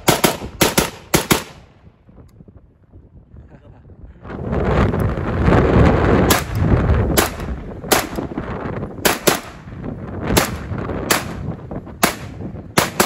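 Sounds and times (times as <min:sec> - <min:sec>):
rifle single shots: 0:00.0 - 0:01.7, 0:07.2 - 0:08.3, 0:09.0 - 0:09.6, 0:10.4 - 0:11.4, 0:12.0 - 0:13.0
wind buffeting microphone: 0:00.0 - 0:13.0.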